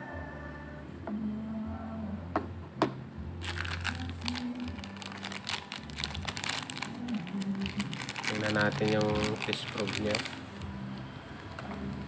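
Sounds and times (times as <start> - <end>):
plastic bag crinkling: 3.4 - 10.7.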